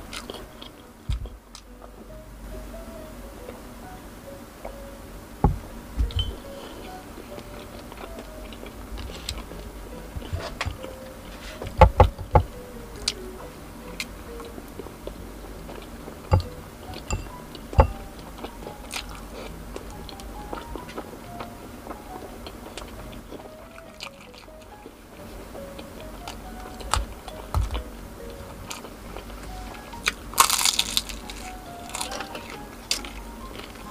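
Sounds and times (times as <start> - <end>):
biting and chewing food: 0.0 - 2.0, 5.5 - 13.2, 13.9 - 25.0, 25.7 - 33.9
soft background music: 0.0 - 33.9
thump: 5.4 - 6.3.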